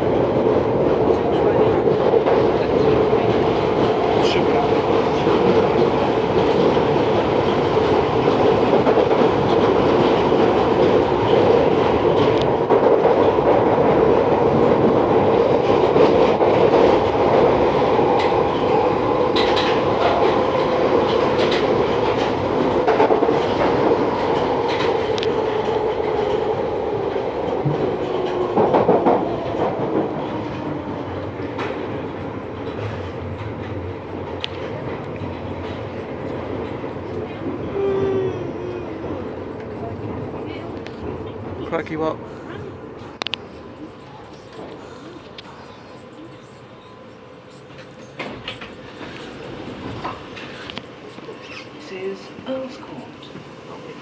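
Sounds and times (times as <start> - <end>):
train rumbling through tunnel: 0.0 - 54.0
wheels clicking over rail joints: 19.3 - 30.7.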